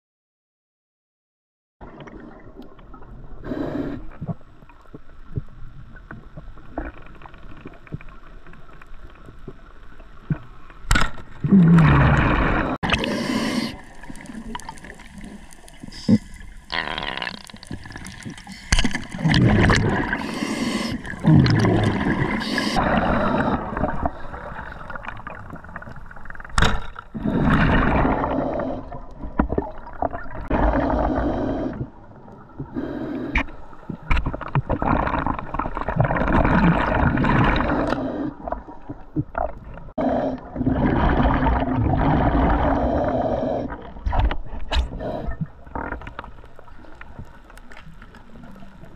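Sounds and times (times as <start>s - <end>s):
gurgling exhaled bubbles: 11.4s - 33.0s, 33.8s - 48.9s.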